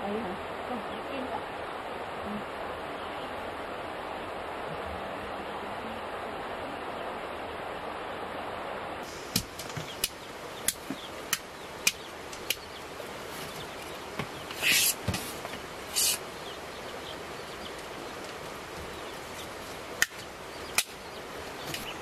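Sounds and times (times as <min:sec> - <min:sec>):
steady rushing noise: 0:00.0 - 0:22.0
short hissing swishes: 0:14.5 - 0:16.3.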